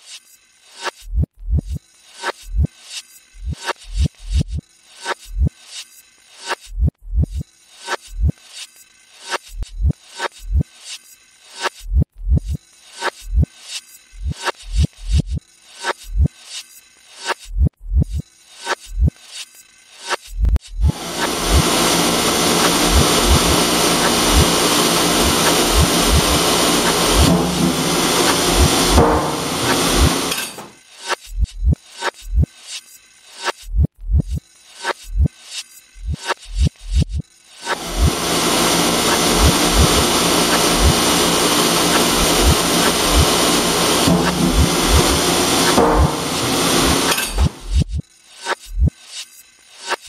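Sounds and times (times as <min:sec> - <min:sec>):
milking equipment mechanical rush: 0:20.8 - 0:30.7, 0:37.7 - 0:47.8
vacuum hiss and hum: 0:20.8 - 0:30.7, 0:37.7 - 0:47.9.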